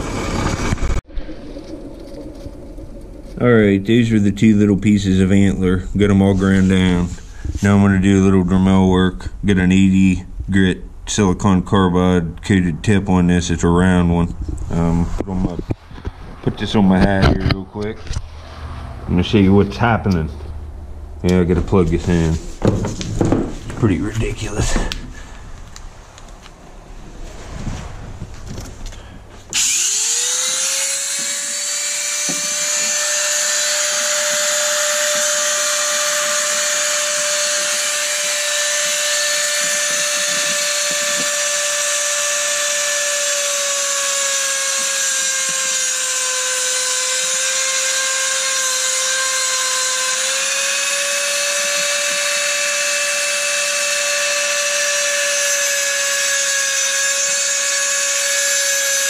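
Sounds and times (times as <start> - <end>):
rotary tool grinding antler: 29.5 - 59.0.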